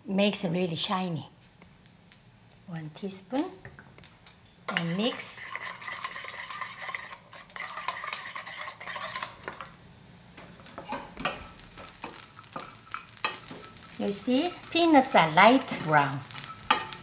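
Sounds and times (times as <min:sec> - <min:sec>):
frying sizzle: 0:00.1 - 0:17.0
spatula stirring in frying pan: 0:01.4 - 0:17.0
wooden spoon scraping metal bowl: 0:04.7 - 0:09.7, 0:10.6 - 0:17.0.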